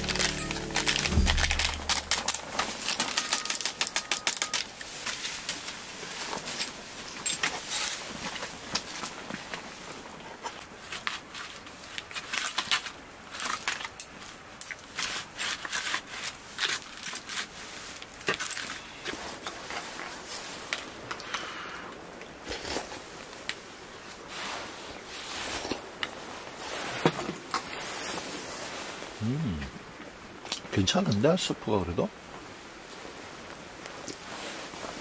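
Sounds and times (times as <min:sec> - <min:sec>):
objects being handled: 0:00.0 - 0:05.7.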